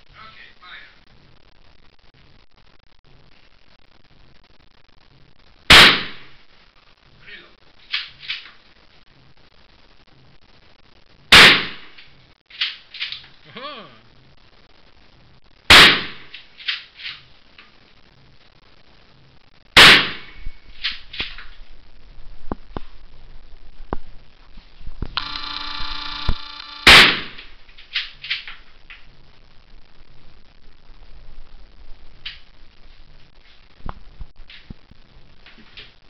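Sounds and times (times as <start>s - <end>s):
gunshot echoes: 5.7s - 6.3s, 11.3s - 12.0s, 15.7s - 16.3s, 19.8s - 20.4s, 26.8s - 27.5s
rifle shots: 5.7s - 6.3s, 11.3s - 11.9s, 15.7s - 16.3s, 19.8s - 20.3s, 26.2s - 27.5s.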